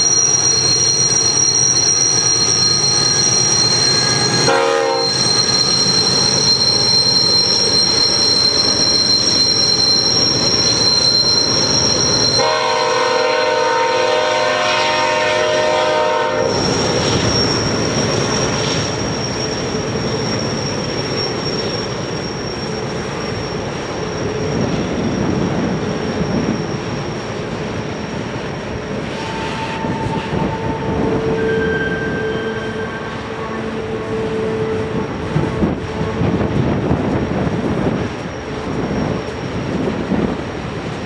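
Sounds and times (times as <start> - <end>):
wheel flange squeal: 0.0 - 13.9, 16.4 - 36.0
freight train rumbling past: 0.0 - 41.0
train horn: 4.2 - 5.3, 12.3 - 16.7, 29.1 - 36.5.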